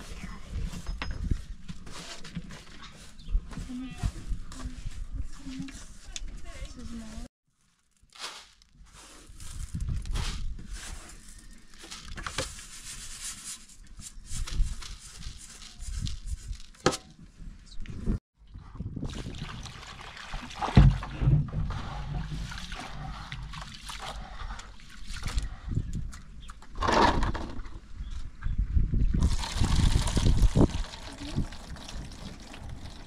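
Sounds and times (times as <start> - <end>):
water sloshing and splashing: 18.8 - 26.3.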